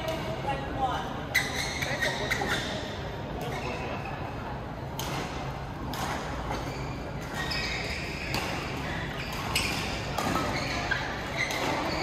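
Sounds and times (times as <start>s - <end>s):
rackets hitting shuttlecock: 4.9s - 12.0s.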